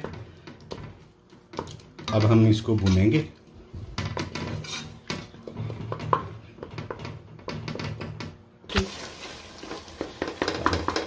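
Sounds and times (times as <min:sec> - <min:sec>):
wooden spoon scraping a pot: 0:03.9 - 0:08.1.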